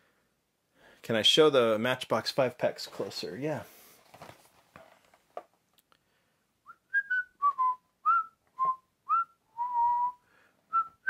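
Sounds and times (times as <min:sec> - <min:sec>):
person whistling a tune: 0:06.7 - 0:11.0.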